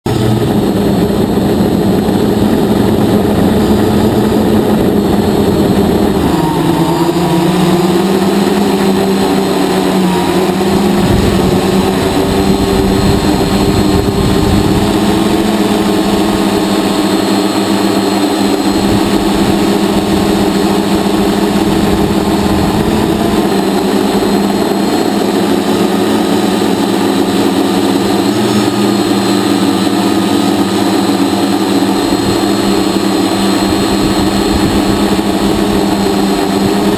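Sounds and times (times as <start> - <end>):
drone motors buzzing: 0.1 - 36.9.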